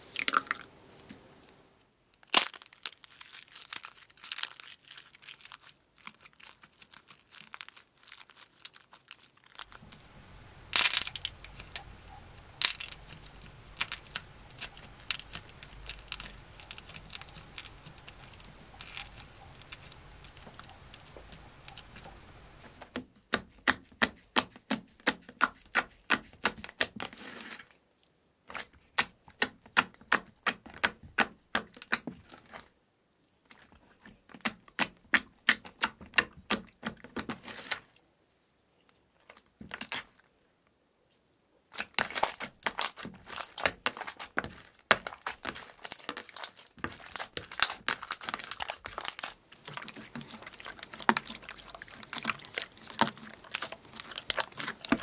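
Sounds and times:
slime crackling and tearing: 0:02.2 - 0:22.2, 0:41.7 - 0:55.0
slime popping: 0:09.6 - 0:24.5, 0:41.8 - 0:55.0.

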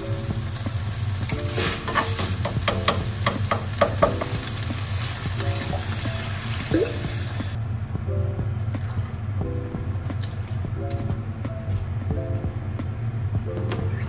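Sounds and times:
meat sizzling in a frying pan: 0:00.0 - 0:07.6
water poured into hot pan: 0:00.1 - 0:07.6
spatula scraping a pan: 0:01.4 - 0:03.4.

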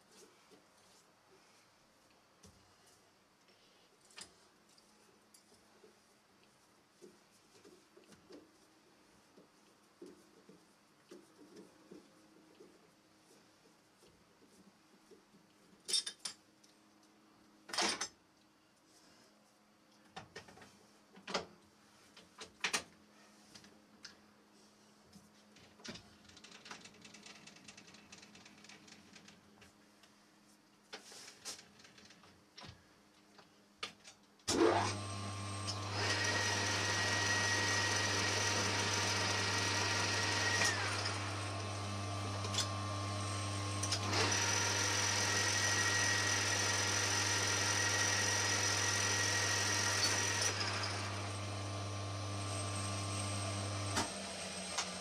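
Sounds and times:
lathe motor running: 0:34.8 - 0:55.0.

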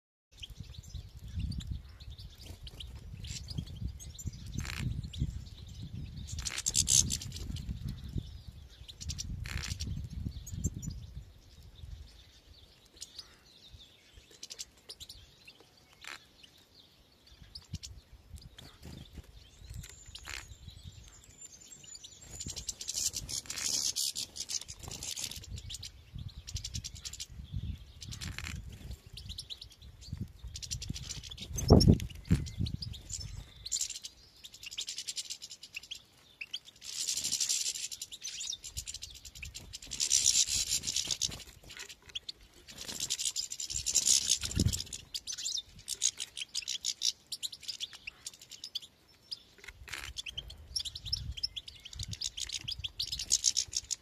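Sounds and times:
goldfinches twittering: 0:17.2 - 0:54.0.

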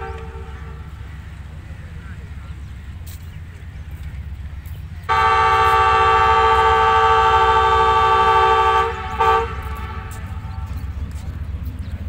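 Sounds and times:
locomotive horn blasts: 0:00.0 - 0:01.1, 0:05.0 - 0:10.7.

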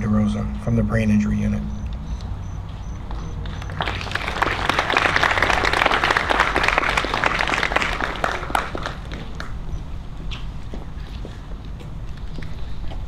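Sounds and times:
audience applauding: 0:03.4 - 0:09.6.

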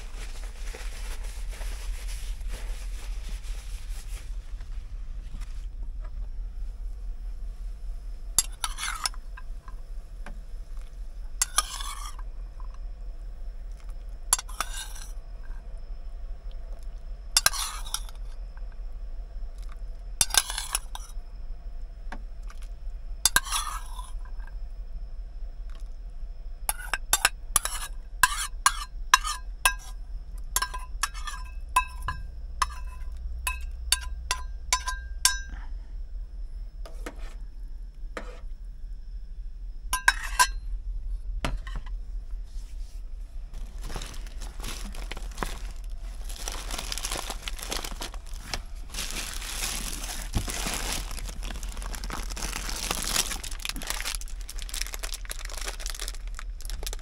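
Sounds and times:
low hum: 0:00.0 - 0:28.3, 0:28.9 - 0:57.0
spoon stirring in pot: 0:08.4 - 0:09.2, 0:11.4 - 0:12.2, 0:14.3 - 0:15.1, 0:17.4 - 0:18.2, 0:23.3 - 0:24.1, 0:26.7 - 0:29.9, 0:30.6 - 0:35.6
utensils clinking on cookware: 0:30.6 - 0:35.6.

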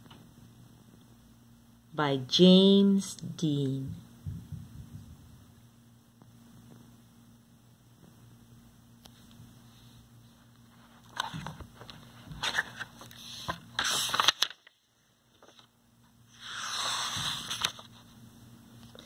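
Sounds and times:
book cover and pages crackling: 0:11.0 - 0:15.7, 0:16.3 - 0:18.0
page swishing: 0:12.4 - 0:14.7, 0:16.3 - 0:18.0.

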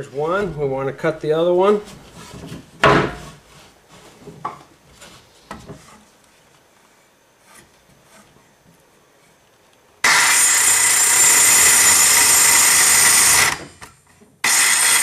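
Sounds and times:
wood knocks and scrapes: 0:00.3 - 0:06.2, 0:07.4 - 0:08.4.

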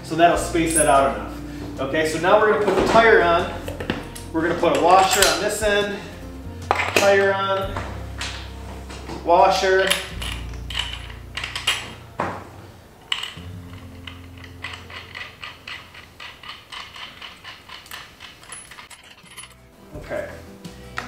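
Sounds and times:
metallic clicks and knocks: 0:09.8 - 0:12.1, 0:13.0 - 0:19.6.

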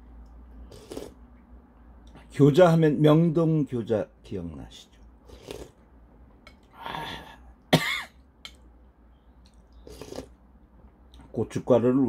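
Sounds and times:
man coughing: 0:07.0 - 0:08.2.

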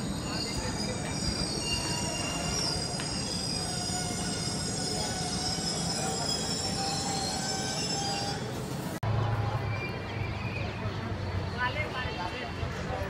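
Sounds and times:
wheel squeal on rails: 0:00.0 - 0:09.0.

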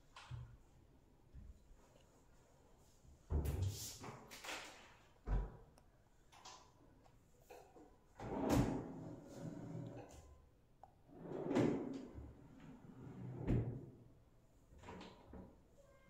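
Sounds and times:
drawer sliding open and shut: 0:08.2 - 0:10.2, 0:11.1 - 0:13.9.

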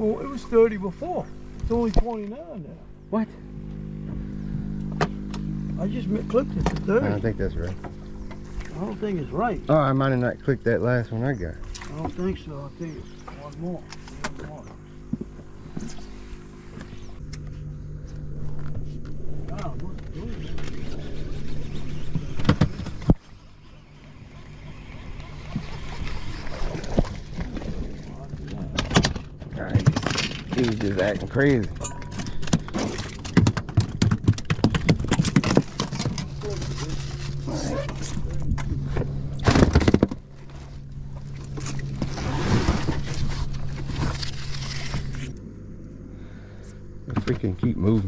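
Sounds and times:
low steady hum: 0:00.0 - 0:48.0
fish splashing in water: 0:24.3 - 0:28.9.

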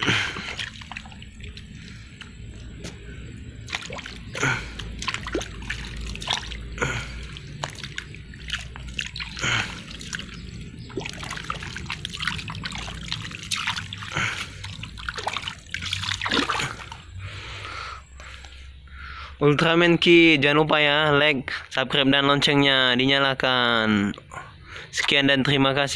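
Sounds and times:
muddy water splashing: 0:00.0 - 0:18.6.

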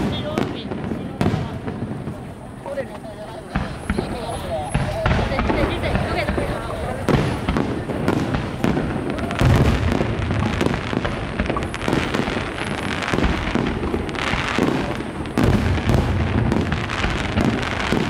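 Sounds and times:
fireworks crackling: 0:00.0 - 0:18.0
fireworks shells exploding: 0:00.0 - 0:18.0.

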